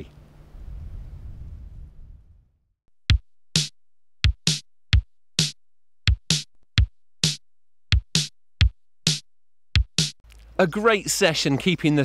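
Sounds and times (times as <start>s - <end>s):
drum machine beat: 3.0s - 10.2s.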